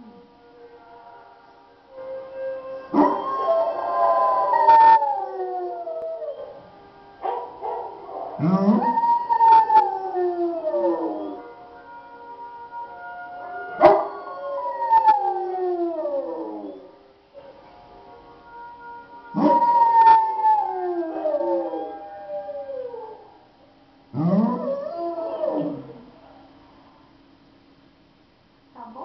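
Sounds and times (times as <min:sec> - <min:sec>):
dog howling: 0:02.2 - 0:06.6, 0:07.2 - 0:11.5, 0:13.7 - 0:17.0, 0:19.3 - 0:23.3, 0:24.2 - 0:26.2.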